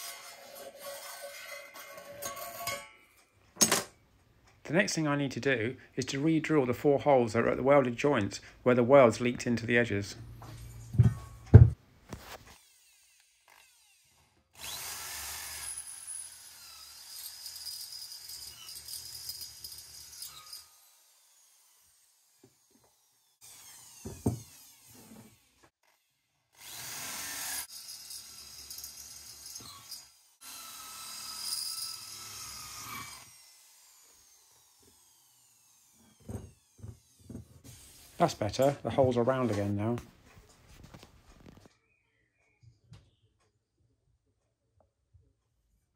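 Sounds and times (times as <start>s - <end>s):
electric drill drilling metal: 12.5s - 38.0s.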